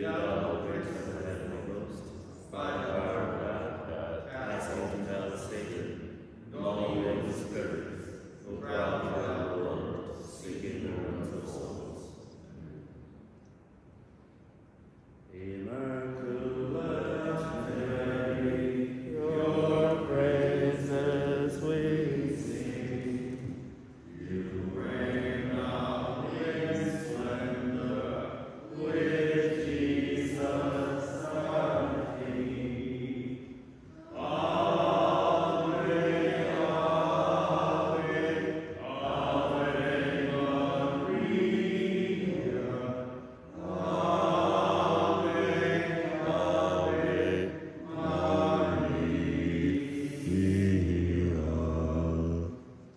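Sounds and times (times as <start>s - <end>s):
hymn sung in long notes: 15.3s - 52.9s.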